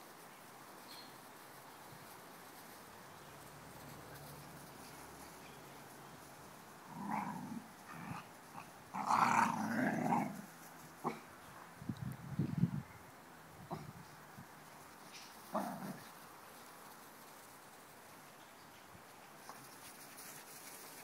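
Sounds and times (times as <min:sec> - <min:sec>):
dogs growling in play: 0:06.8 - 0:11.2, 0:15.5 - 0:16.1.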